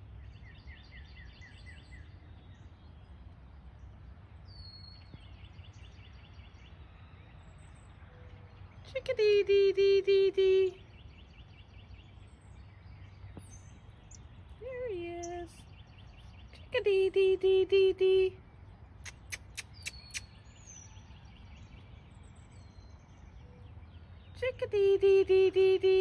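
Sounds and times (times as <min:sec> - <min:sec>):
chickadee calling: 0:14.1 - 0:15.8, 0:19.0 - 0:20.4.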